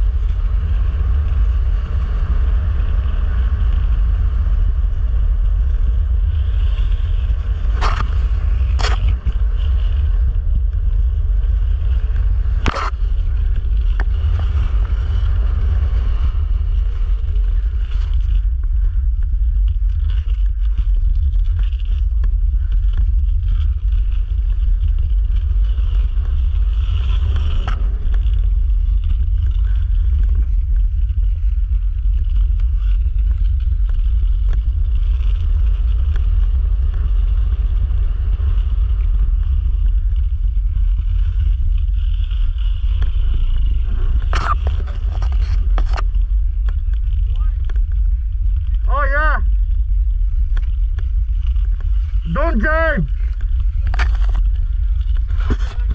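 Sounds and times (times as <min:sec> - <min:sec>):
wind rumbling on microphone: 0:00.0 - 0:55.9.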